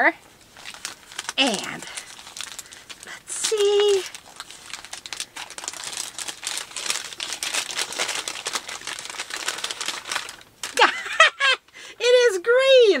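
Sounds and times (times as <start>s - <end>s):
wrapping crinkling: 0.3s - 11.3s
woman exclaiming: 3.3s - 4.1s, 10.7s - 11.3s.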